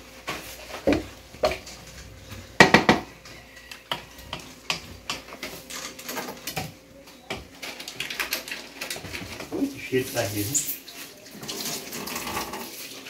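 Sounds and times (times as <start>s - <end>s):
pots and pans clattering: 2.6s - 3.2s, 10.6s - 13.0s.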